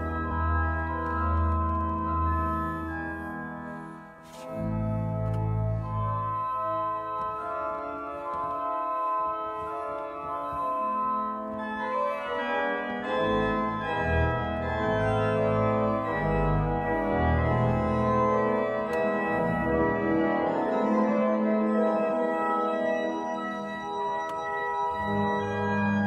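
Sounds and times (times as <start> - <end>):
deep organ pedal notes: 0.0 - 26.0
pipe organ chords: 0.0 - 26.0.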